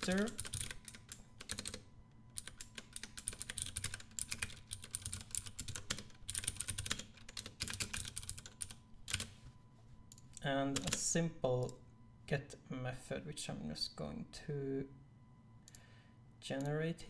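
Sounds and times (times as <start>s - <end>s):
keyboard typing: 0.0s - 9.4s, 10.1s - 11.0s.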